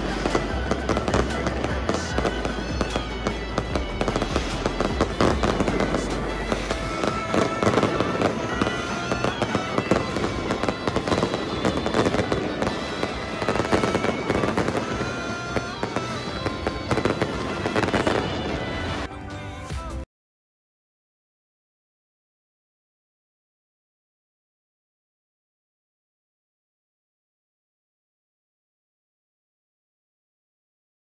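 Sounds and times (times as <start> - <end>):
fireworks crackling and banging: 0.0 - 20.0
music: 0.0 - 20.1.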